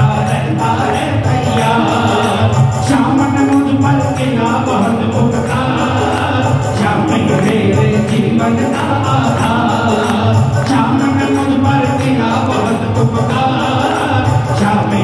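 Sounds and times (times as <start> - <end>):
band music with steady beat: 0.0 - 15.0
devotional singing: 0.0 - 15.0
jingling percussion: 0.0 - 15.0.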